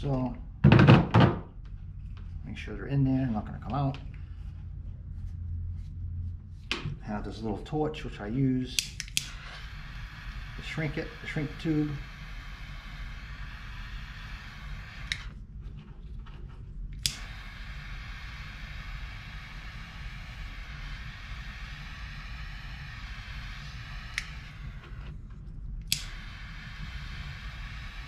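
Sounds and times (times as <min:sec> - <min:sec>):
torch flame hissing: 0:08.6 - 0:15.4, 0:17.0 - 0:25.2, 0:25.8 - 0:28.0
torch igniter click: 0:08.7 - 0:15.3, 0:17.0 - 0:25.0, 0:25.8 - 0:28.0.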